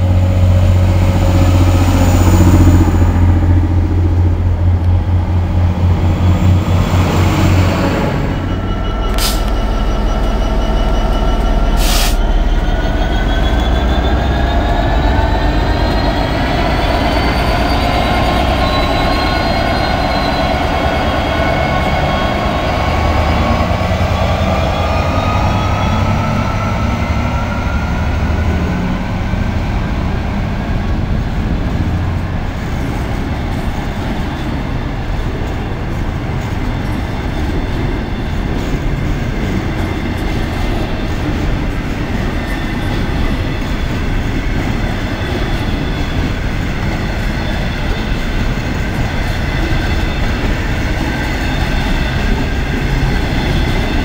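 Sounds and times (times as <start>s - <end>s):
diesel locomotive rumble: 0.0s - 54.0s
rising engine whine: 0.0s - 54.0s.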